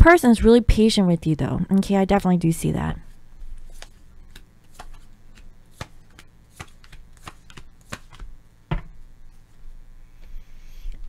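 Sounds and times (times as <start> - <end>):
cards clicking and slapping: 3.6 - 8.3.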